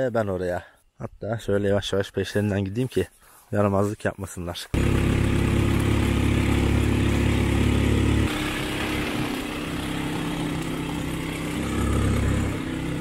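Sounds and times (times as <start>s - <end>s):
atv engine running: 4.8s - 13.0s.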